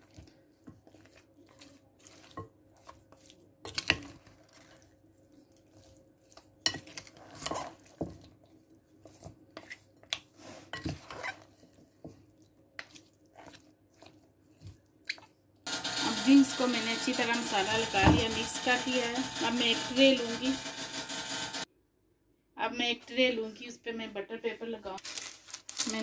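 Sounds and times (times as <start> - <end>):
spatula scraping glass bowl: 15.7 - 21.7.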